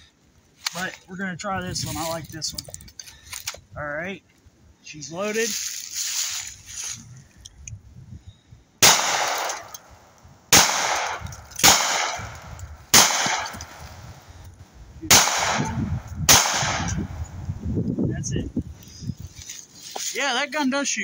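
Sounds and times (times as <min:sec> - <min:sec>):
gunshots with echo: 0:08.8 - 0:09.8, 0:10.5 - 0:13.8, 0:15.1 - 0:17.2.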